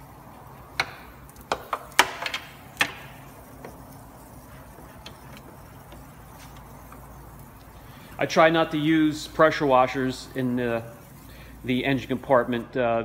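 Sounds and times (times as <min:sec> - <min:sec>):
sharp clicks and knocks: 0:00.6 - 0:04.0.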